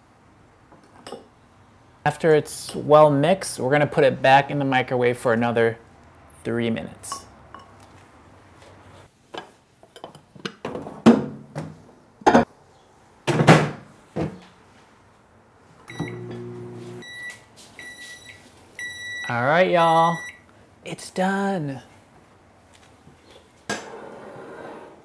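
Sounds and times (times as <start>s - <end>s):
microwave oven hum: 15.9s - 17.3s
microwave high beeps: 15.9s - 19.4s, 20.0s - 20.4s.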